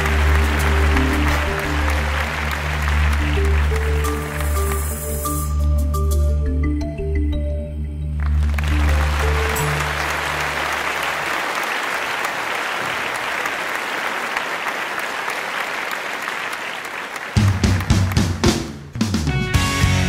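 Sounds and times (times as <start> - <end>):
clapping: 0.0 - 5.2, 8.2 - 18.8
background music: 0.0 - 11.4, 17.4 - 20.0
music with drums: 17.4 - 20.0.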